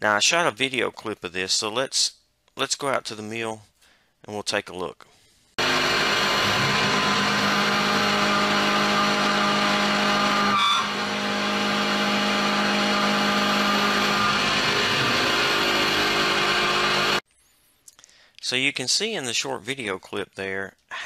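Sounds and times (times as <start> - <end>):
milling machine cutting metal: 5.6 - 17.2.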